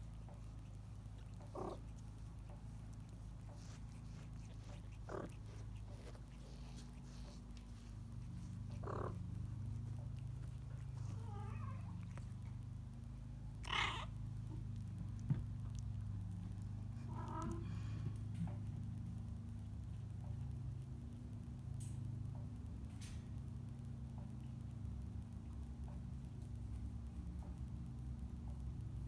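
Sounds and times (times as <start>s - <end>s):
cat licking: 0.0s - 21.6s
low purr: 0.0s - 29.0s
kitten mewing: 1.2s - 2.0s.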